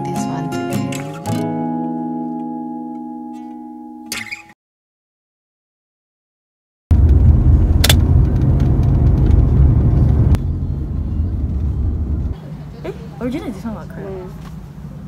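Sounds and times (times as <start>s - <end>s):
car cabin rumble: 6.9s - 15.0s
sharp click: 7.8s - 8.0s.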